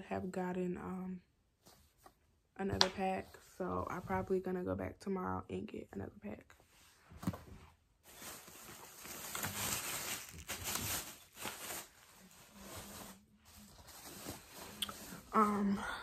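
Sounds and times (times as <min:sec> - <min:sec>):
plastic bag rustling: 0:08.0 - 0:15.8.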